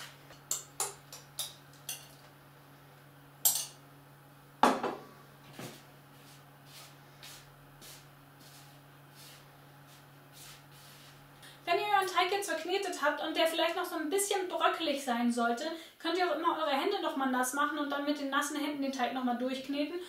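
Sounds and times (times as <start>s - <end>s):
glass bowl and spoon clinking: 3.5s - 3.8s
kitchenware knocking: 4.6s - 5.0s.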